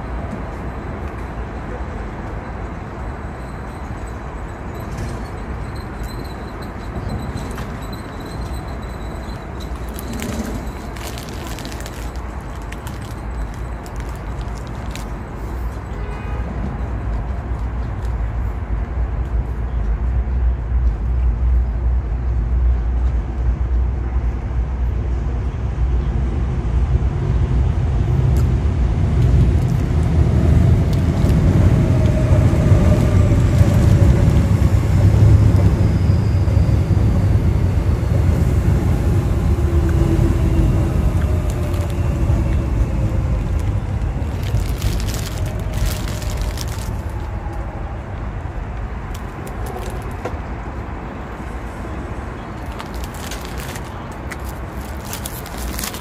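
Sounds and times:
passing motor traffic rumble: 6.4 - 15.9, 16.5 - 56.0
paper wrapper crackling: 9.8 - 15.2, 41.5 - 42.0, 43.6 - 47.2, 49.1 - 50.2, 52.6 - 56.0.

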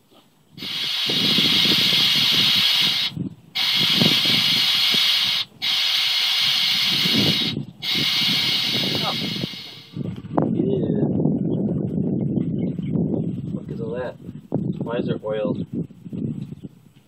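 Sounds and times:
compressed air hissing: 0.6 - 10.0
low sputter: 0.6 - 10.6.

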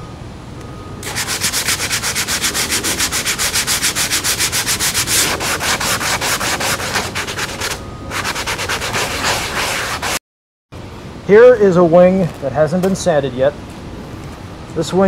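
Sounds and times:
hand sanding scratching strokes: 1.0 - 10.2.

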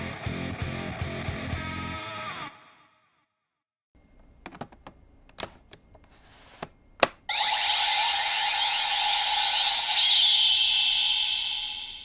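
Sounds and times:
high electronic ringing: 7.3 - 12.0.

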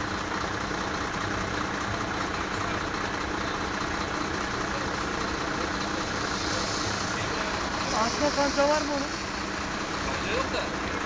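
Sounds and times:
vehicle engines idling: 0.0 - 11.0.

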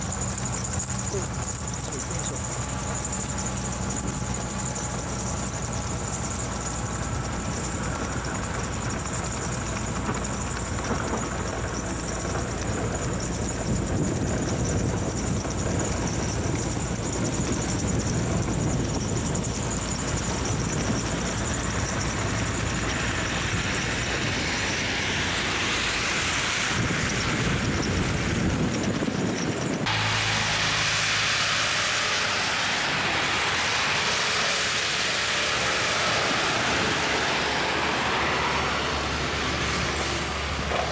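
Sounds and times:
diesel engine running: 0.0 - 40.9
snow pushed by blade hiss: 29.9 - 40.9.

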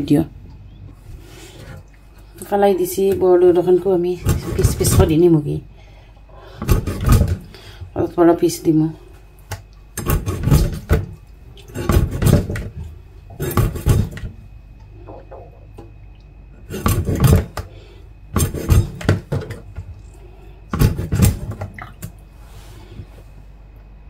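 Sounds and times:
knife chopping fish: 10.0 - 12.7, 13.4 - 14.3, 16.6 - 17.7, 18.3 - 19.4, 20.7 - 21.7.

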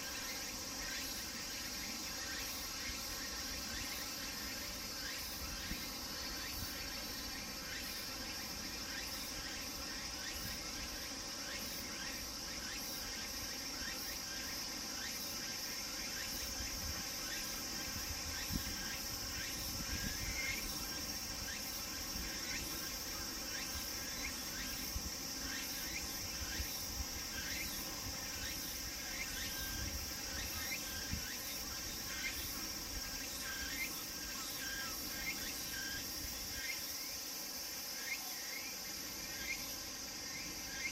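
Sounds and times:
cicadas calling: 0.0 - 40.9.

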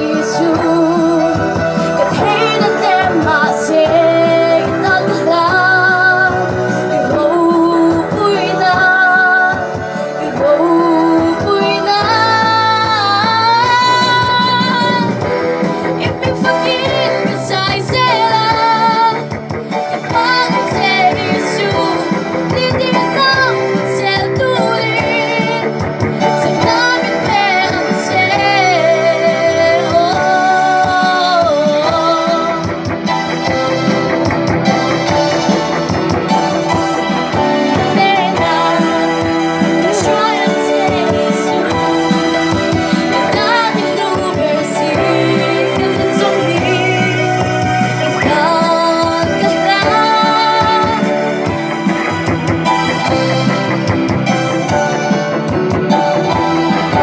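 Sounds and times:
girl singing into microphone: 0.0 - 1.4, 2.0 - 15.3, 16.0 - 19.4, 20.0 - 32.8, 37.7 - 42.0, 43.2 - 47.5, 48.2 - 51.2
live band playing: 0.0 - 57.0.

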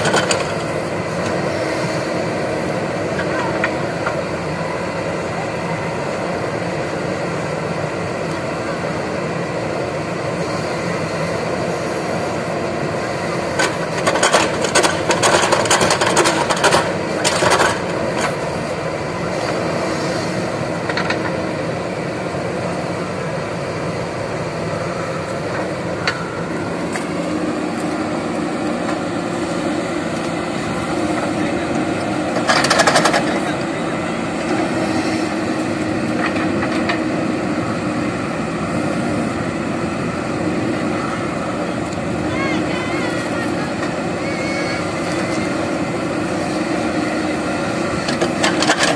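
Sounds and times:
diesel engine running under load: 0.0 - 48.9
backhoe bucket clatter: 32.4 - 33.6, 48.0 - 48.9.

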